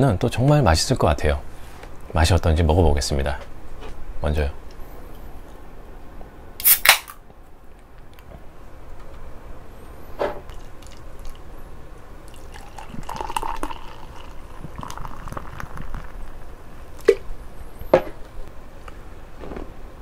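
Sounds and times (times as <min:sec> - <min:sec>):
beer pouring into glass: 0:12.3 - 0:17.2.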